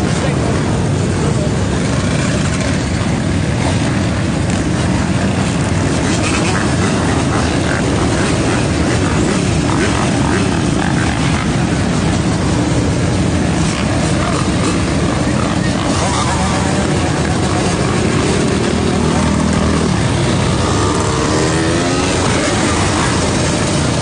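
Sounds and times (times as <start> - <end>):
many motorcycle engines rumbling: 0.0 - 24.0.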